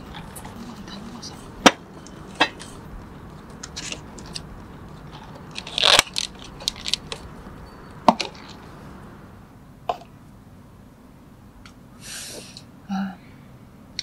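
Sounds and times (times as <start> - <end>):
plastic crinkling rustle: 2.2 - 7.4.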